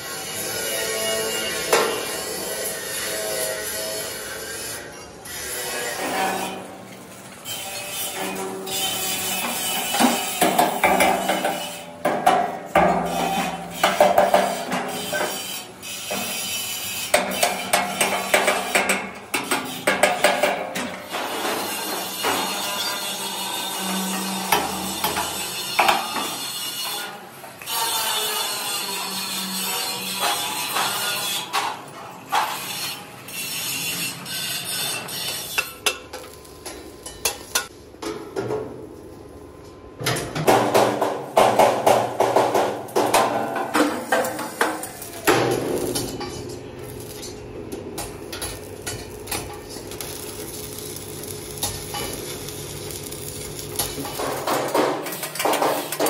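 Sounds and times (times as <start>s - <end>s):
hammer striking steel frame: 9.4s - 15.4s, 17.1s - 22.6s, 23.8s - 26.4s, 40.2s - 47.4s.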